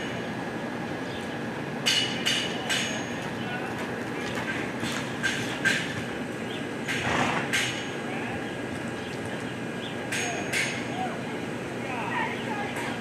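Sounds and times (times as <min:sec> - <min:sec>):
arena background hum: 0:00.0 - 0:13.0
horse hoofbeats on dirt: 0:03.2 - 0:06.2.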